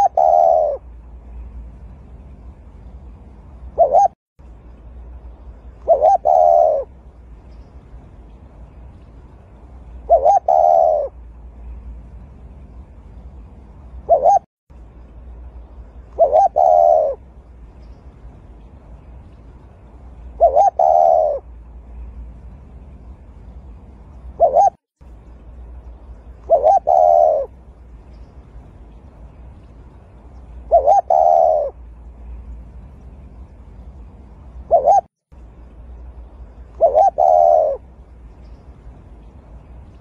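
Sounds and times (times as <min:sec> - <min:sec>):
dove cooing: 0:00.0 - 0:00.9, 0:03.7 - 0:04.2, 0:05.8 - 0:07.0, 0:10.1 - 0:11.2, 0:14.0 - 0:14.5, 0:16.1 - 0:17.2, 0:20.4 - 0:21.5, 0:24.4 - 0:24.8, 0:26.4 - 0:27.6, 0:30.5 - 0:31.8, 0:34.6 - 0:35.1, 0:36.7 - 0:37.9
faint steady hum: 0:00.0 - 0:40.0.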